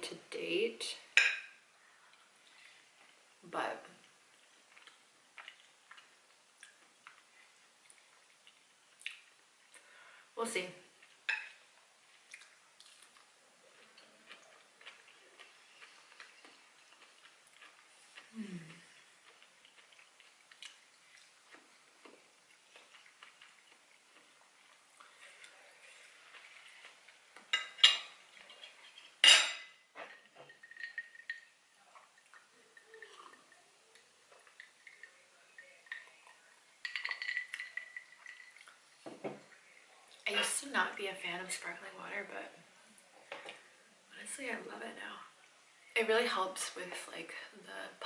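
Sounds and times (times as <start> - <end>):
faint chewing: 1.8 - 9.9, 10.9 - 29.2, 29.9 - 40.3
drinking sparkling water: 27.6 - 40.9.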